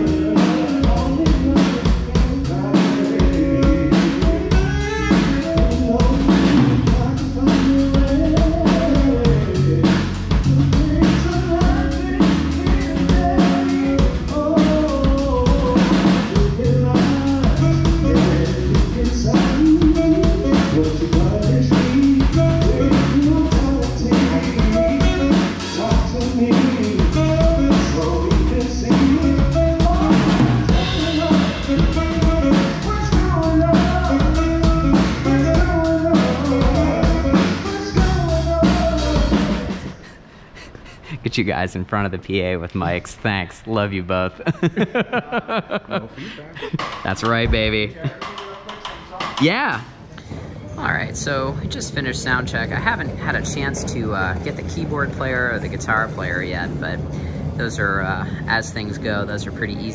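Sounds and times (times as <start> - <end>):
drum kit kick and snare: 0.0 - 39.9, 46.6 - 49.8
live band playing through pa: 0.0 - 41.2.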